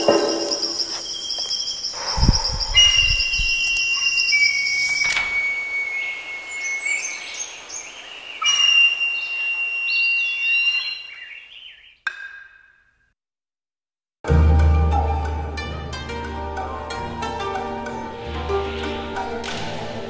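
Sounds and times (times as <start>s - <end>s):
bird calls: 0.0s - 12.7s
plucked string music: 14.3s - 20.0s.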